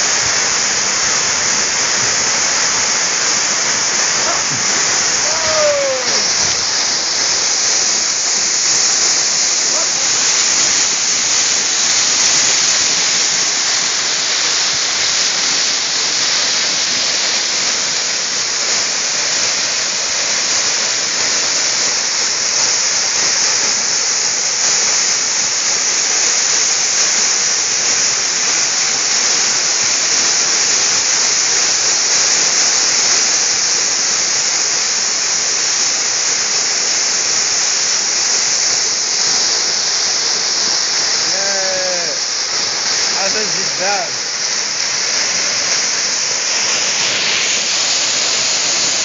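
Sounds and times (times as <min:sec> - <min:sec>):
waterfall rushing: 0:00.0 - 0:49.0.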